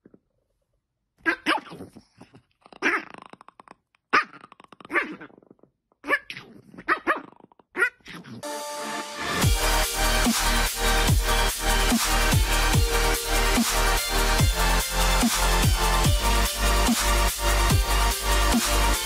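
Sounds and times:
dog growling and barking: 1.2s - 8.4s
electronic music: 8.4s - 19.0s.

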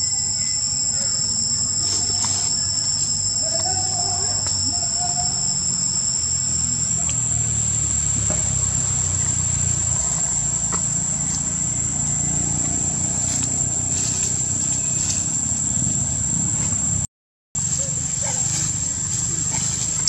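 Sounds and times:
high-pitched whine: 0.0s - 20.0s.

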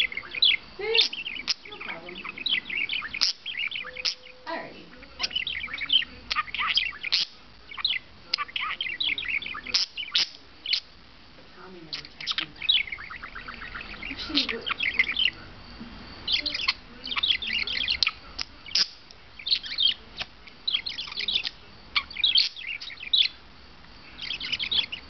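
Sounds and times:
budgerigar chattering: 0.0s - 10.9s, 11.8s - 15.4s, 16.2s - 23.4s, 24.2s - 25.0s.

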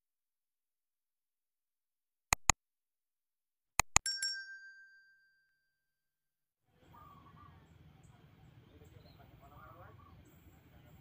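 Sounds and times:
double mouse click: 2.3s - 2.6s, 3.8s - 4.0s
small bell ding: 4.0s - 5.9s.

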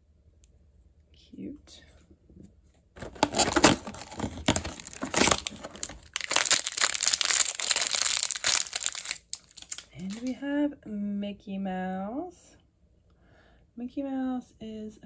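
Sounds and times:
plastic bag crinkling: 3.0s - 10.3s.

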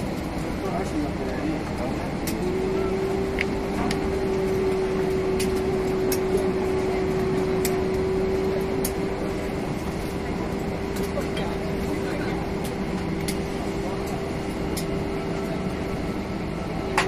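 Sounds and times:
air-conditioning rush: 0.0s - 17.0s
steady mid-pitched whine: 0.0s - 17.0s.

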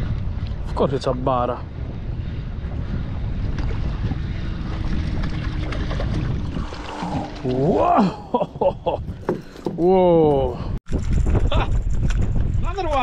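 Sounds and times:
wind buffeting microphone: 0.0s - 13.0s
man exclaiming: 7.5s - 8.7s, 9.8s - 10.7s.

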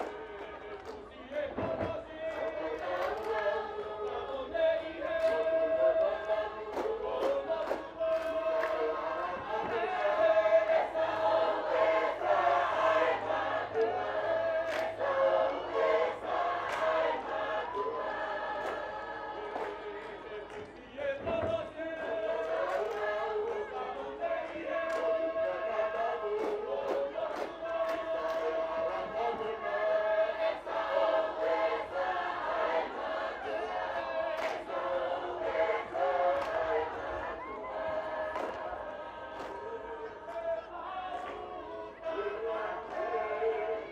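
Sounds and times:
large choir chanting: 0.0s - 43.9s.

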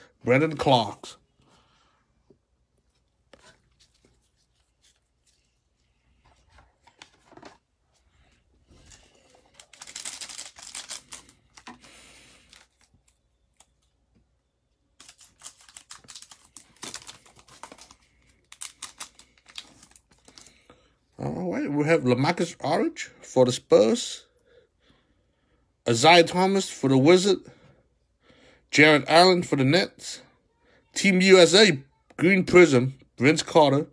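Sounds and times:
cards rustling: 2.8s - 14.0s, 14.9s - 20.7s
wrapper crinkling: 8.8s - 13.8s, 15.0s - 20.7s
plastic wrapper tearing: 9.4s - 13.2s, 15.0s - 20.6s.

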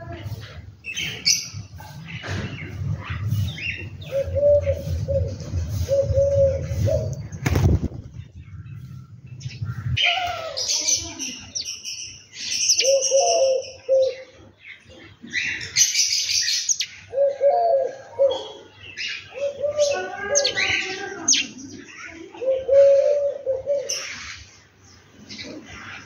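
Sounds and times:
sparrows chirping: 0.0s - 26.0s
dove cooing: 4.0s - 7.3s, 12.8s - 14.4s, 17.1s - 18.7s, 19.3s - 21.6s, 22.3s - 24.1s.

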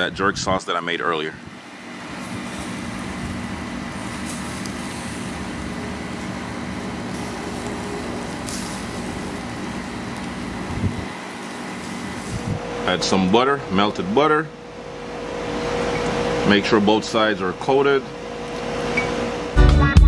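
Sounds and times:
steady low hum: 0.0s - 19.6s
chicken sizzling on a grill: 1.6s - 13.2s.

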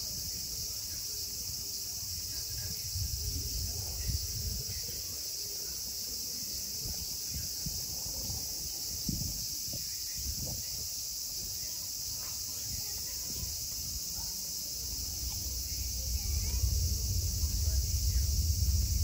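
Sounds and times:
insects chorus: 0.0s - 19.0s
low rumble: 14.6s - 19.0s.

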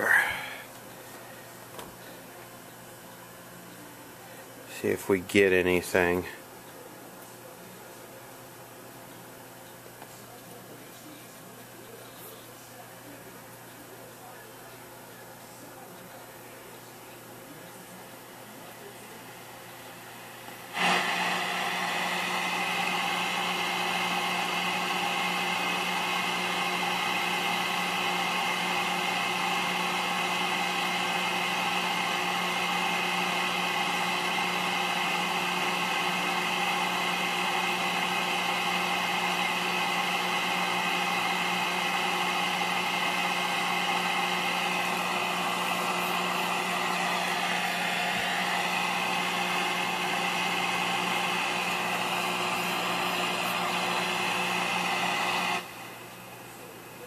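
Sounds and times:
television static hiss: 0.0s - 57.0s.

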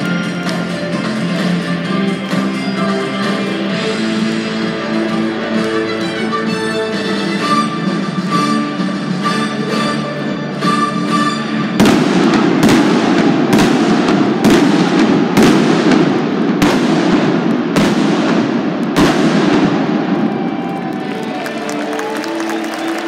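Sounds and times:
orchestral music: 0.0s - 23.0s
fireworks bangs echoing: 11.7s - 20.6s.

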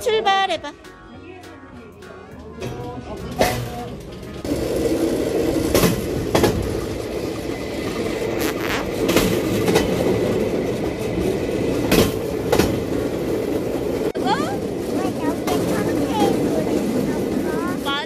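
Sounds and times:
steel wheels rolling on track: 2.4s - 18.0s
wheels clacking over rail joints: 2.4s - 18.0s.

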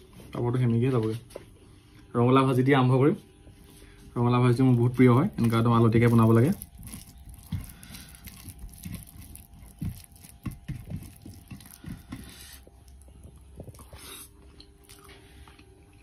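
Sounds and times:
fingers squishing food on plate: 4.8s - 15.1s
person chewing: 4.8s - 16.0s.

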